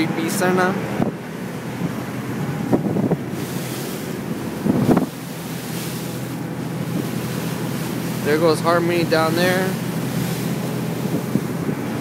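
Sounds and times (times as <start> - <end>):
boat engine humming: 0.0 - 12.0
water rushing past hull: 0.0 - 12.0
wind on microphone: 0.8 - 8.2, 9.4 - 12.0
hull slamming into waves: 0.8 - 12.0.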